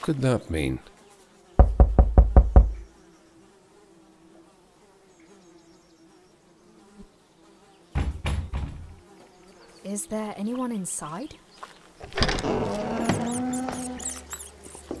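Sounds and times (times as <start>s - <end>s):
flies buzzing faintly: 0.0s - 15.0s
knocking on a door: 1.6s - 2.8s, 8.0s - 9.0s.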